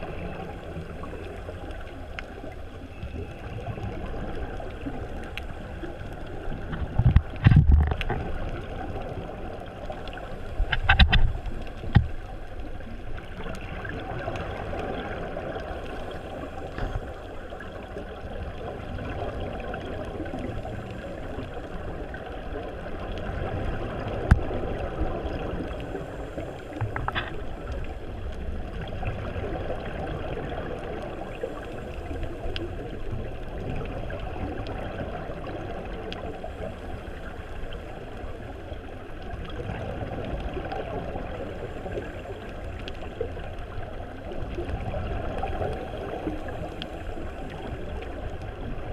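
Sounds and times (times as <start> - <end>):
muffled underwater noise: 0.0 - 48.9.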